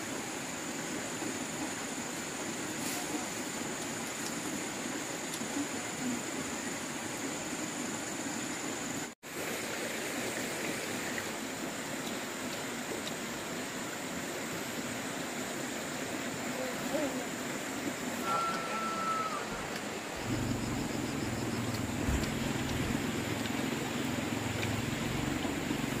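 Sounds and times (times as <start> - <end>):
outdoor background hiss: 0.0 - 26.0
faint high whine: 18.1 - 22.7.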